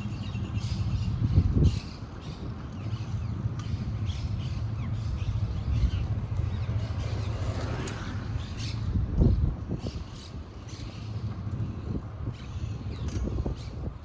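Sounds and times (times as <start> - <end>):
bicycle rolling noise: 0.0 - 14.0
birds chirping: 0.0 - 14.0
wind rumble: 0.0 - 14.0.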